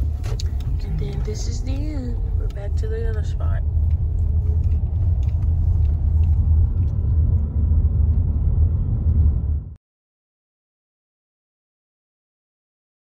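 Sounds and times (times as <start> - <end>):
car driving heard from inside: 0.0 - 9.8.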